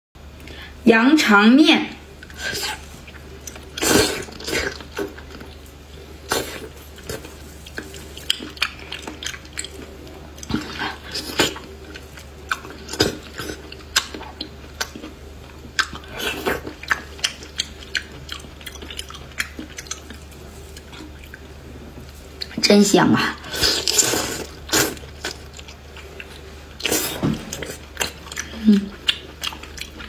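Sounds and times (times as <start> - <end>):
slurping noodles: 3.8 - 5.1, 23.4 - 25.4.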